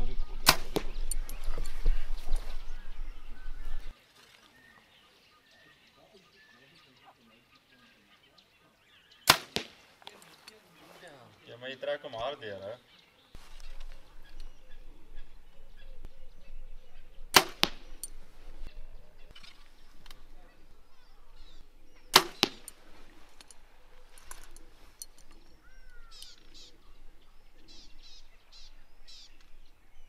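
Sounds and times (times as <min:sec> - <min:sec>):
arrow striking target: 0:00.4 - 0:02.6, 0:09.3 - 0:09.8, 0:17.3 - 0:18.7, 0:22.1 - 0:23.0
bow string snapping: 0:00.4 - 0:03.9, 0:17.3 - 0:20.3, 0:21.3 - 0:26.6.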